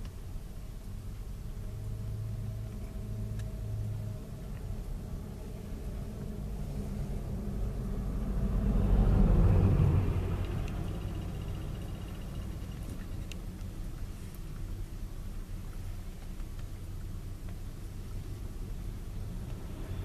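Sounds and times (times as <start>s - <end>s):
low street traffic rumble: 0.0s - 20.0s
truck driving past: 5.8s - 12.7s.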